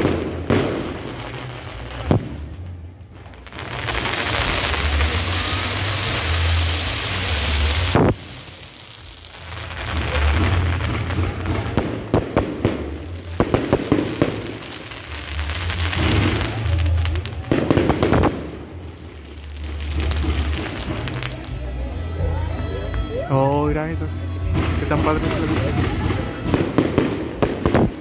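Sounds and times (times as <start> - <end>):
fireworks bangs and crackling: 0.0 - 23.1, 23.7 - 28.0.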